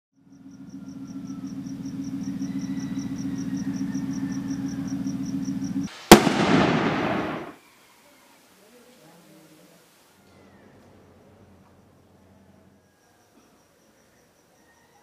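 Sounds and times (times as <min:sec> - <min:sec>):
steady low hum with ticking: 0:00.2 - 0:05.9
firework bang: 0:06.1 - 0:07.6.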